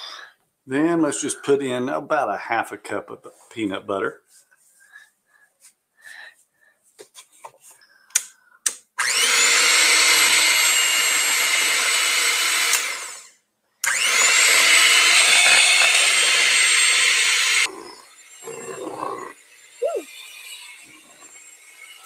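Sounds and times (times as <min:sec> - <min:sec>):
electric hand mixer whining: 0:09.0 - 0:22.0.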